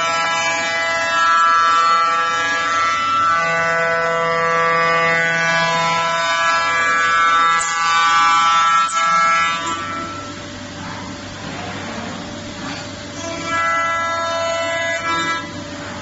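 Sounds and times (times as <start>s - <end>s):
router spindle whining milling wood: 0.0s - 10.5s.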